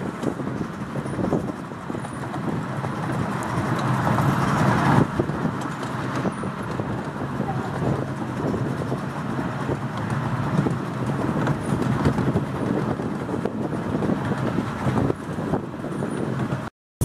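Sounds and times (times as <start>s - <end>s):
train wheels rumbling on track: 0.0s - 16.7s.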